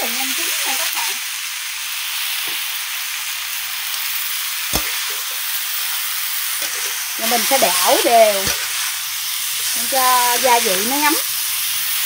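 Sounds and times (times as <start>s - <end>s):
vegetables sizzling in a wok: 0.0s - 12.0s
sharp knock: 4.8s - 5.2s.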